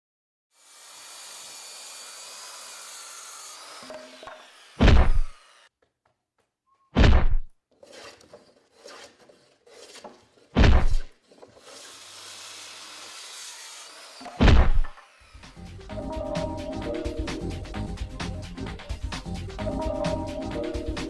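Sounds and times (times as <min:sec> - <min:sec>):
wood being sawn: 0:00.6 - 0:05.7, 0:07.7 - 0:15.6
heavy booming thuds: 0:07.0 - 0:07.5.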